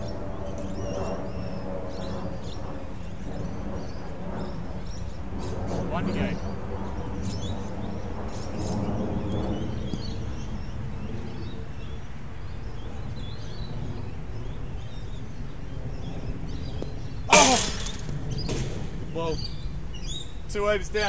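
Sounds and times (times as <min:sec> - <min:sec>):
low ambient hum: 0:00.0 - 0:21.0
small birds chirping: 0:00.0 - 0:21.0
loud harsh cry: 0:17.3 - 0:18.0.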